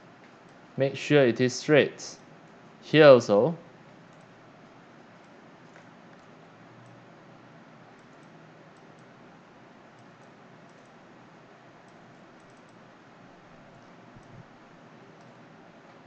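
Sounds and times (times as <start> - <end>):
steady hiss: 0.8 - 3.6
computer mouse clicks: 4.1 - 4.4, 5.1 - 7.0, 7.9 - 9.2, 9.9 - 11.0, 11.8 - 12.8, 13.7 - 14.5, 15.2 - 15.4.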